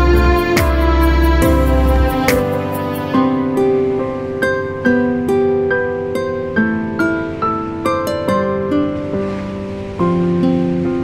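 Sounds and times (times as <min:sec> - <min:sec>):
background music with steady beat: 0:00.0 - 0:03.4.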